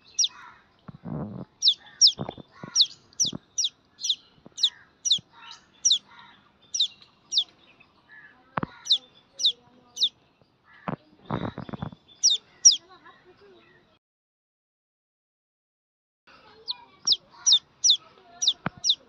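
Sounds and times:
duckling peeping: 0.0 - 0.4, 1.2 - 6.1, 6.7 - 7.5, 8.8 - 10.1, 12.2 - 12.8, 16.6 - 19.0.

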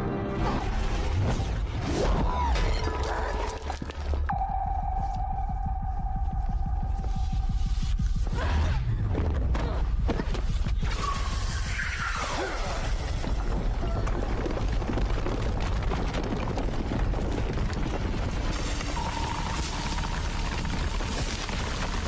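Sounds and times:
film soundtrack music: 0.0 - 13.6
deep rumble: 0.6 - 11.9, 12.5 - 22.0.

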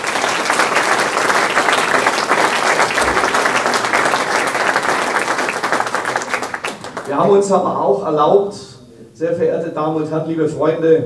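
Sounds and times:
audience applauding: 0.0 - 7.4.

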